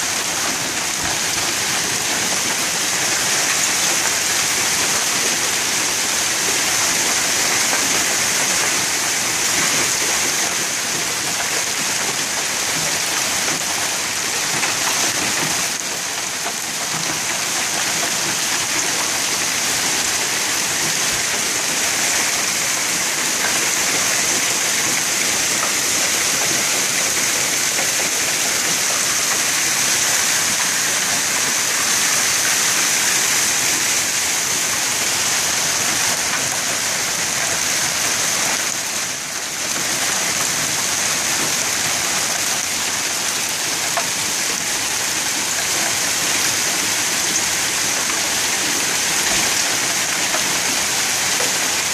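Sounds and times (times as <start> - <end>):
hail and rain falling hard: 0.0 - 51.9.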